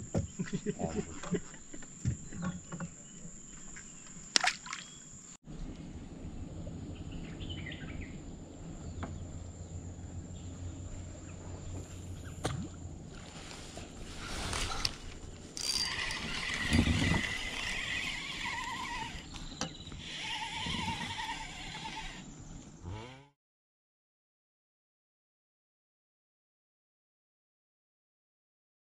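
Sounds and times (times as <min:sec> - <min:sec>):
wind rumble on microphone: 0:05.5 - 0:15.3.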